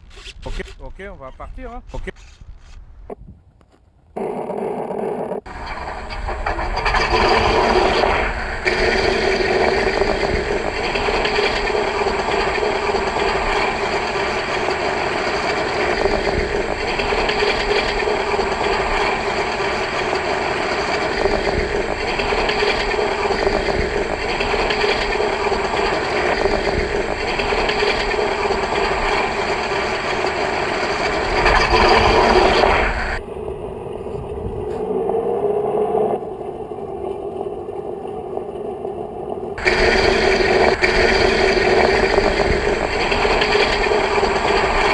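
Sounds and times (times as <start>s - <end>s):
propeller plane engine: 5.4s - 35.1s, 39.6s - 44.9s.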